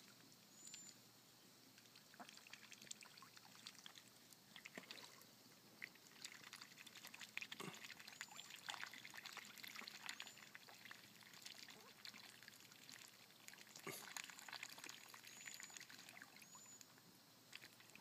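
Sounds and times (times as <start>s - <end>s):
ducks splashing in water: 1.8s - 5.2s, 5.8s - 16.4s.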